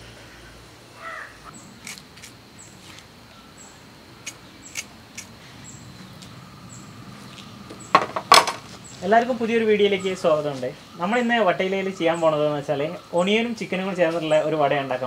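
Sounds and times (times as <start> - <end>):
crow cawing: 1.0 - 1.6
sharp clicks: 4.2 - 5.3.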